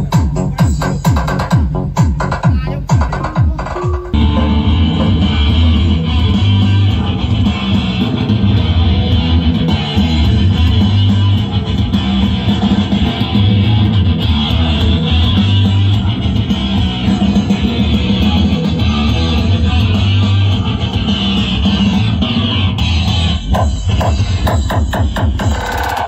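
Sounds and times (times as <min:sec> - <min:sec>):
heavy booming bass: 0:00.0 - 0:26.0
loud music with guitar: 0:00.0 - 0:26.0.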